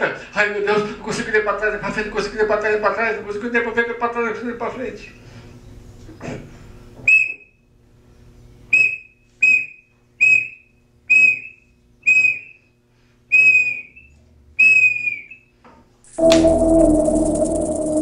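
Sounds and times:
whistle short blasts: 7.1 - 7.5, 8.7 - 12.6, 13.3 - 15.3.

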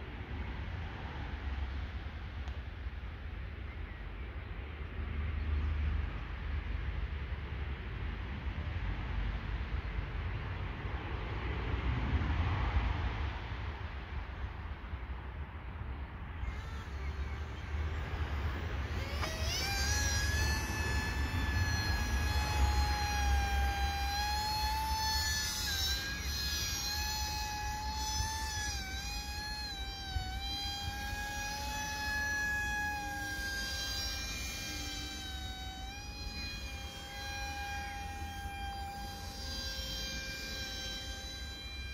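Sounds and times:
model aircraft motor whining: 16.3 - 41.9.

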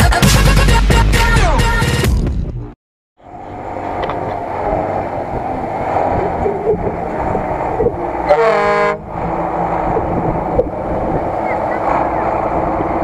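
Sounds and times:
car engine running: 3.2 - 13.0
car horn toot: 8.3 - 9.0.

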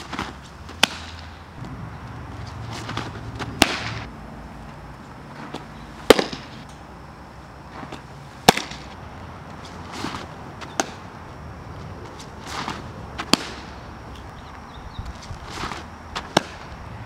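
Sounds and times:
faint knocks and scuffs: 1.6 - 3.6
softball smacking into leather mitt: 2.8 - 4.0, 5.5 - 6.5, 7.9 - 8.8, 10.0 - 11.0, 12.6 - 13.6, 16.2 - 16.6.

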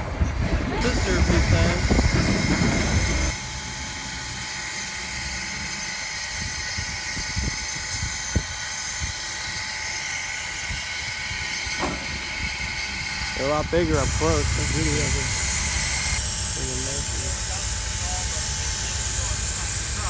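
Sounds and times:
steam locomotive hissing: 0.0 - 20.0
blast of steam: 11.8 - 20.0.

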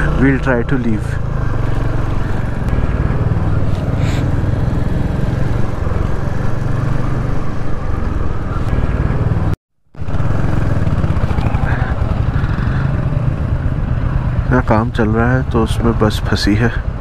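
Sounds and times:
road and wind noise: 0.0 - 17.0
motorcycle engine running: 8.6 - 17.0.

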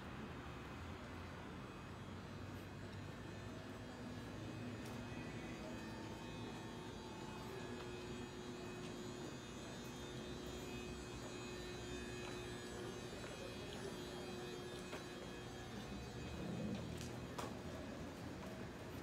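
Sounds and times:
electric train hum: 0.0 - 19.0
faint steady tones: 0.0 - 19.0.

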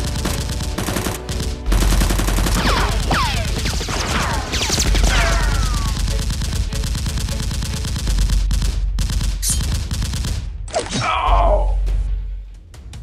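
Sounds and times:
automatic gunfire: 0.0 - 10.5.

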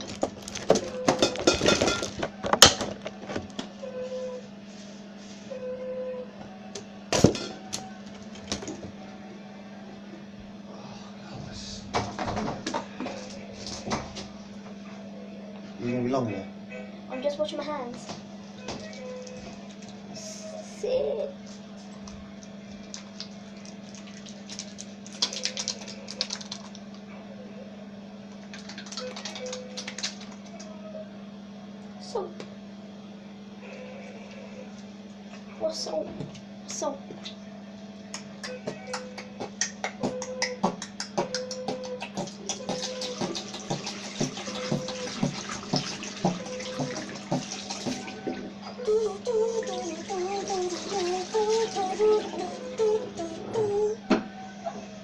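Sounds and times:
steady low hum: 0.0 - 55.0
soapy hands rubbing: 22.8 - 26.8, 28.5 - 30.5, 38.2 - 53.4
tap running into sink: 43.1 - 48.1.

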